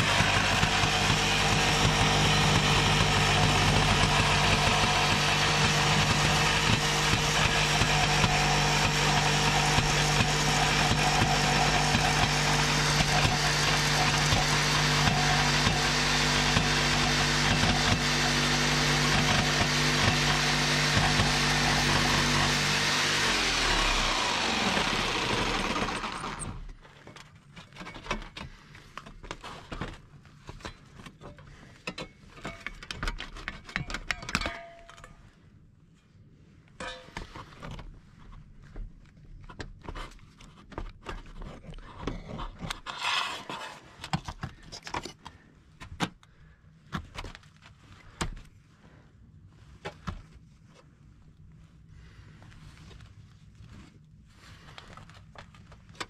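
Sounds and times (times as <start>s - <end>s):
jigsaw cutting sheet metal: 0.0s - 26.7s.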